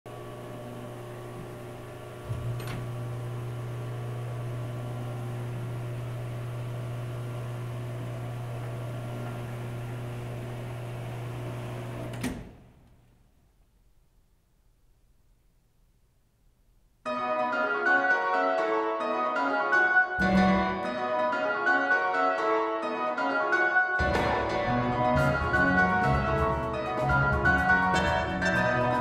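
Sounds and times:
curtain motor humming: 0.1 - 12.7
motor stopping clunk: 0.2 - 13.0.

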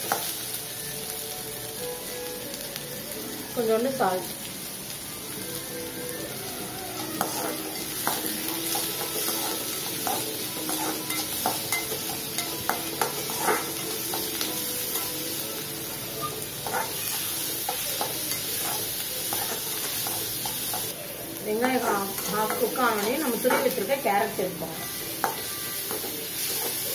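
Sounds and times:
oil sizzling: 0.0 - 26.9
metal spatula scraping a pan: 7.2 - 15.1, 16.2 - 20.9, 21.6 - 23.9.

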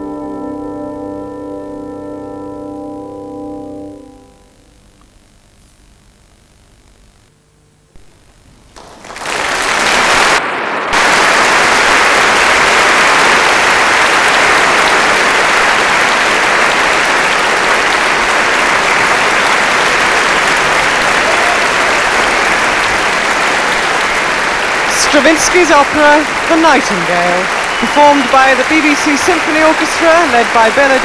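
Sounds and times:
audience applause: 8.0 - 31.0.

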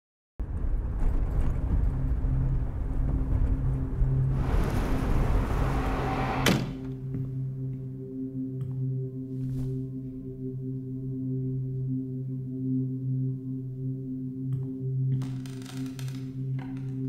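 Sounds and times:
rushing whoosh: 4.3 - 6.4.

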